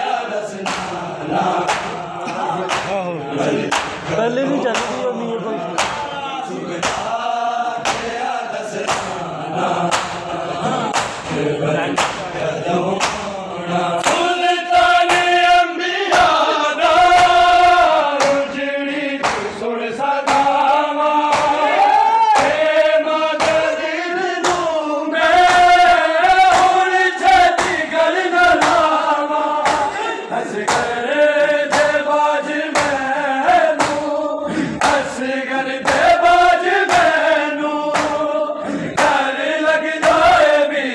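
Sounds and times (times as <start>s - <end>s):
men chanting in unison: 0.0s - 40.9s
hands slapping chests: 0.5s - 3.0s, 3.6s - 4.1s, 4.7s - 5.0s, 5.8s - 6.1s, 6.8s - 7.2s, 7.8s - 12.3s, 12.9s - 13.3s, 14.0s - 18.5s, 19.2s - 19.6s, 20.2s - 23.8s, 24.4s - 24.7s, 25.4s - 30.0s, 30.6s - 35.2s, 35.8s - 38.3s, 38.9s - 39.4s, 40.0s - 40.5s.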